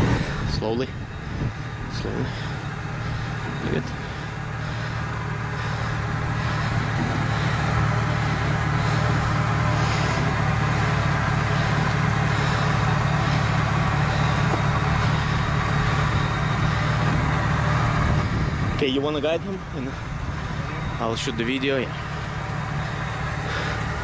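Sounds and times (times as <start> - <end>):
truck engine low drone: 0.0 - 24.0.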